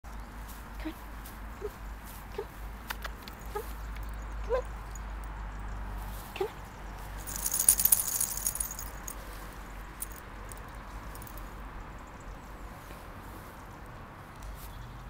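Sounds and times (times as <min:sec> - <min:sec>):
light metallic jingling: 0:03.2 - 0:11.6.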